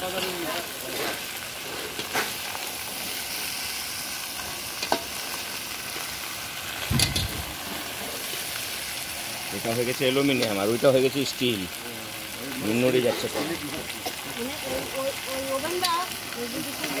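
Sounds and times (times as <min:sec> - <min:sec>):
vegetables sizzling in oil: 0:00.0 - 0:17.0
metal spatula scraping pan: 0:00.2 - 0:02.4.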